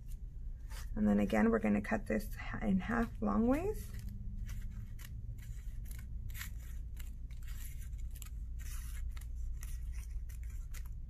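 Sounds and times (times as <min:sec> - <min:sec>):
scissors snipping paper: 0:03.2 - 0:11.0.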